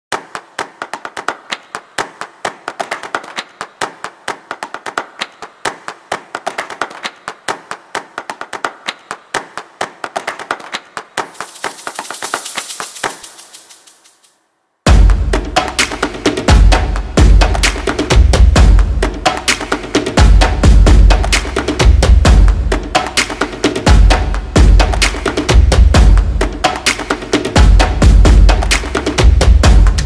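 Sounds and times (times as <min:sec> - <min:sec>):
high hiss: 0:11.3 - 0:14.4
rapid crackling clicks: 0:11.3 - 0:14.4.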